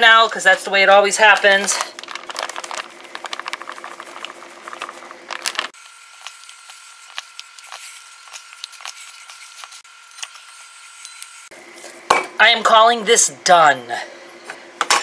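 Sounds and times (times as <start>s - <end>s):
plastic bag crinkling: 1.0s - 9.9s.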